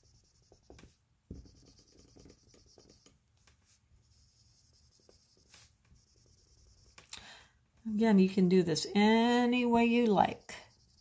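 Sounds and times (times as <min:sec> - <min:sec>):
marker scratching on whiteboard: 0:00.0 - 0:07.0, 0:10.2 - 0:11.0.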